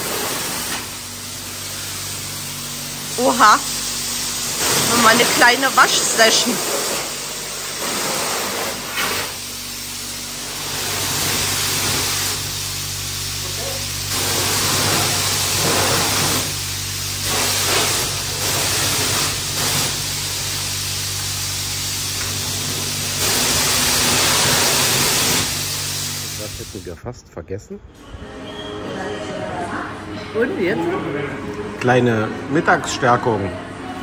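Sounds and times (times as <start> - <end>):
pressure washer spraying water: 0.0 - 27.0.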